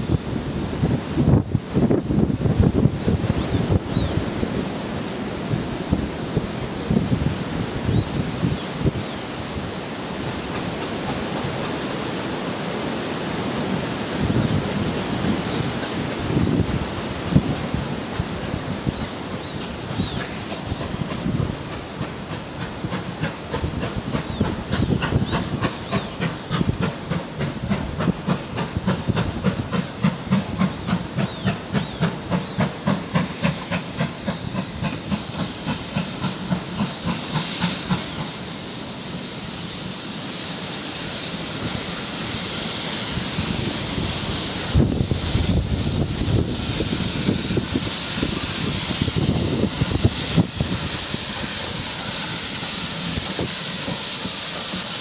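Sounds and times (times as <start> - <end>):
steam hissing: 0.0 - 55.0
steam locomotive chuffing: 0.0 - 55.0.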